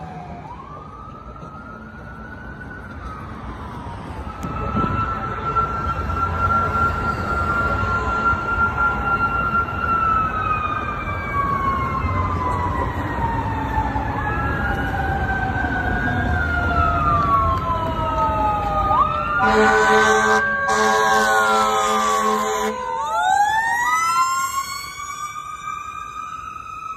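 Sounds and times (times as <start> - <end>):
ambulance siren wailing: 0.0 - 26.9
traffic noise: 0.0 - 26.9
loud horn blasts: 19.4 - 22.8.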